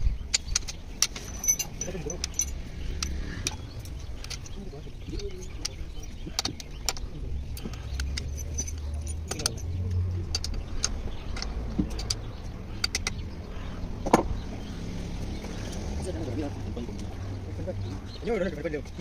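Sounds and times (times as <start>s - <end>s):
metallic clinks of hand tools: 0.3s - 7.0s, 7.6s - 13.2s.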